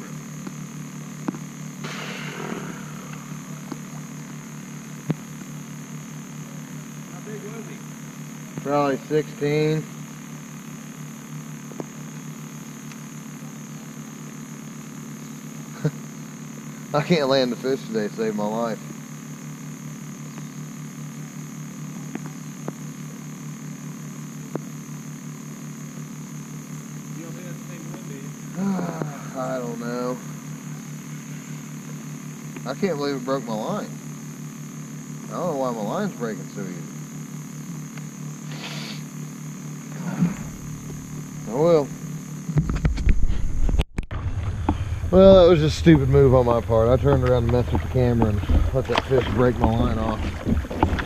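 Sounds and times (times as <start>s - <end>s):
faint high whine: 0.0s - 51.0s
low electrical hum: 0.0s - 51.0s
faint hiss: 1.8s - 5.2s, 38.4s - 39.2s.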